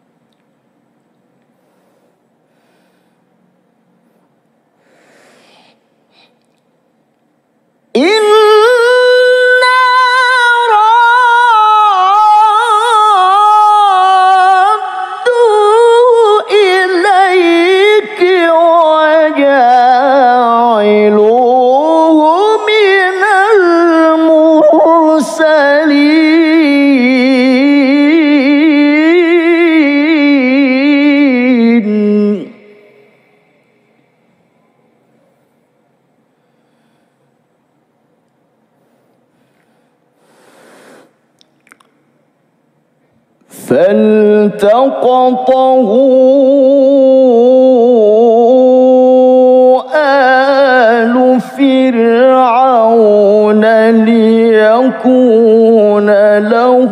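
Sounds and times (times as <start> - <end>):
man chanting recitation: 7.9 - 33.6, 43.5 - 56.9.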